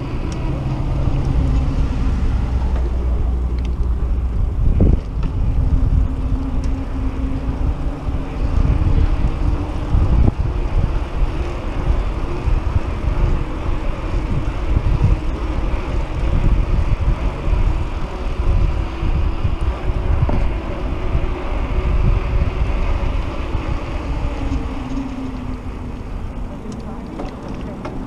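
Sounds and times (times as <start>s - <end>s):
bike tyres rolling on concrete: 0.0s - 28.0s
wind buffeting microphone: 0.0s - 28.0s.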